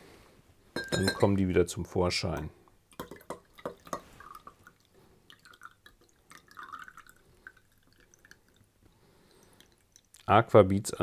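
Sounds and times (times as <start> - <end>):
water trickling and dripping: 2.4 - 10.7.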